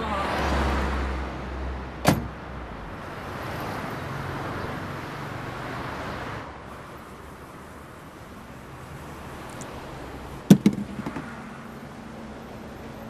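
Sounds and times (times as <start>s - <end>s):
street noise: 0.0s - 13.0s
car door slamming: 2.0s - 2.4s, 10.5s - 11.4s.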